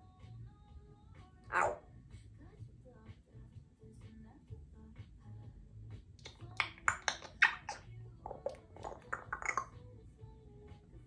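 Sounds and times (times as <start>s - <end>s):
parrot harsh speech-like calls: 1.5s - 1.8s, 6.2s - 9.7s.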